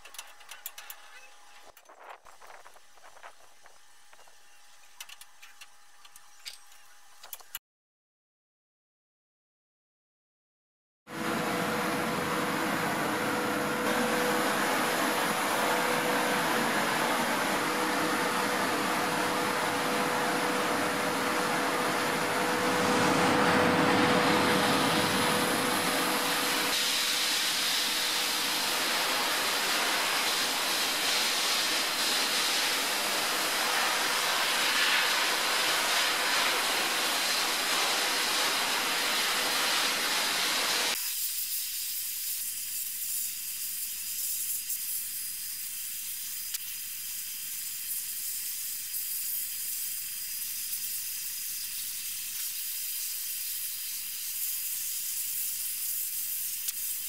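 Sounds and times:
abrasive blast nozzle hissing: 13.9 - 57.0.

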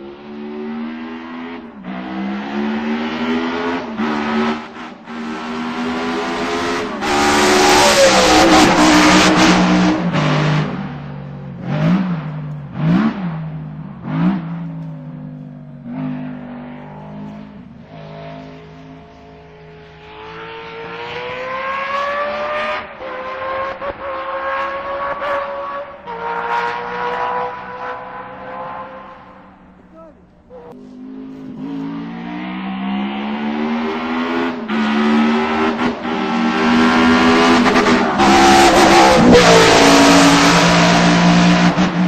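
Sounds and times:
racing car engine revving: 0.0 - 29.9, 30.7 - 42.0.

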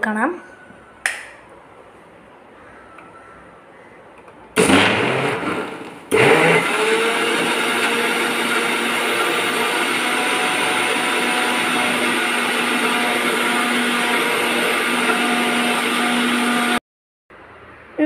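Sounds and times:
electric mixer grinder running: 4.6 - 16.8.

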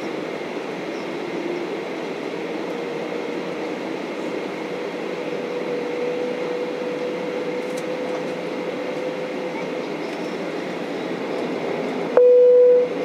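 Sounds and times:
mid-pitched whine: 12.2 - 13.0.

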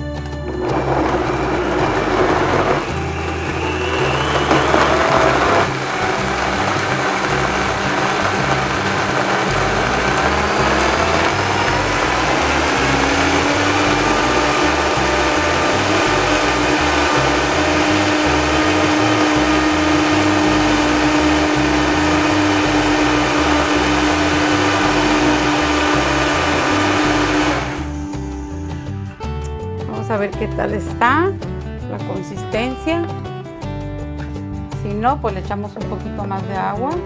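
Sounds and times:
kitchen blender running: 0.4 - 28.3.

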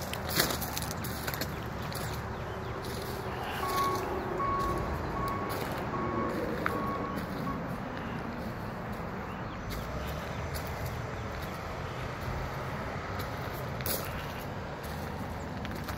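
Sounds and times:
footsteps on gravel: 0.0 - 15.9
vehicle rumble: 0.0 - 15.9
reversing alarm beeping: 3.5 - 7.8.

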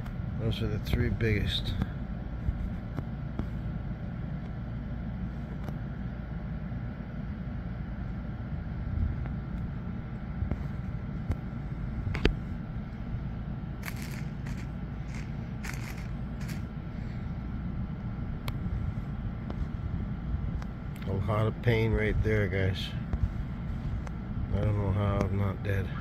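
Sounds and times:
low background rumble: 0.0 - 26.0.

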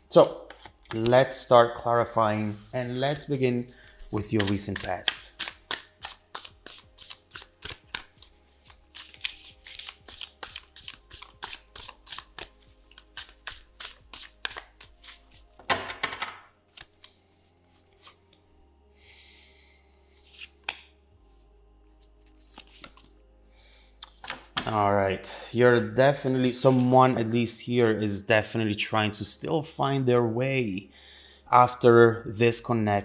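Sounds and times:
cards being shuffled: 4.1 - 15.7, 16.7 - 18.4, 20.2 - 20.9, 22.0 - 23.2, 24.1 - 24.7.

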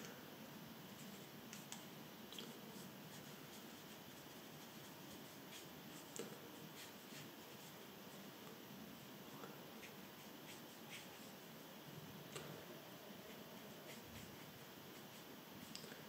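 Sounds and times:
paintbrush brushing on paper: 0.9 - 1.7, 2.6 - 8.4, 9.6 - 11.7, 13.1 - 15.8.

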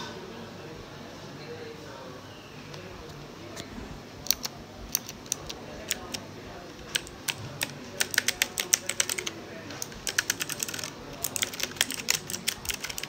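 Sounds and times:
mechanical keyboard typing: 4.2 - 13.0.

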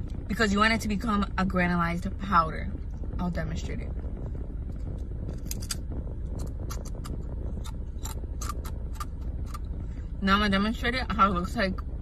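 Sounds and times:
low steady rumble: 0.0 - 12.0
chip crunching while chewed: 6.4 - 9.7.

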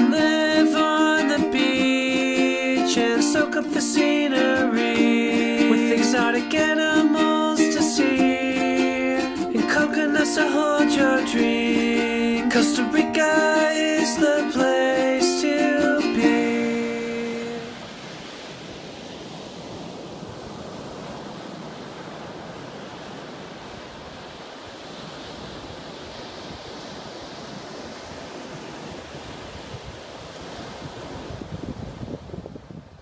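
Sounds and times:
ukulele song: 0.0 - 17.8
ocean surf washing: 0.0 - 33.0
wind rumble on microphone: 23.8 - 33.0.

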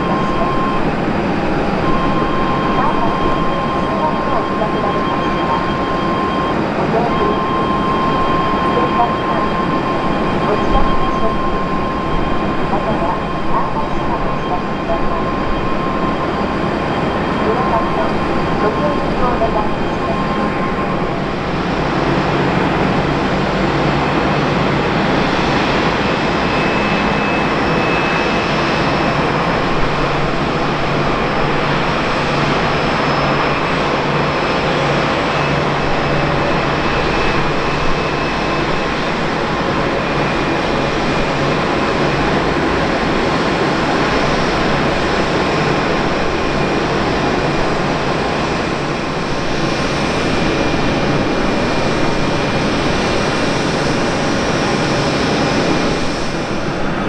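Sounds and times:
jet engines idling: 0.0 - 57.0.

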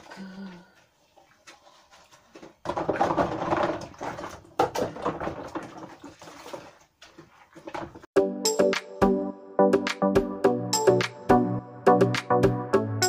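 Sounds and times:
water sloshing and splashing: 0.0 - 8.1
dishes clinking and knocking: 2.6 - 5.8.

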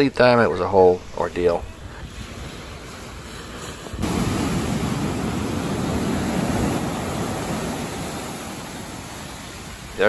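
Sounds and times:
surf breaking on sand: 2.0 - 10.0.

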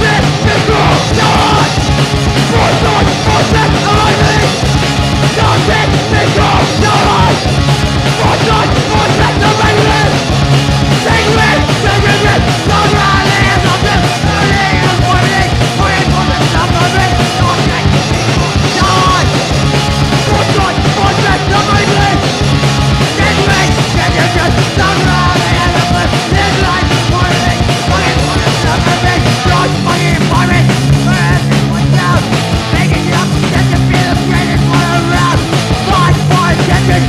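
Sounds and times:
person yelling vocals: 0.0 - 1.7, 2.5 - 4.6, 5.3 - 7.4, 8.2 - 10.2, 11.0 - 19.3, 20.3 - 22.2
punk rock band playing: 0.0 - 37.0.

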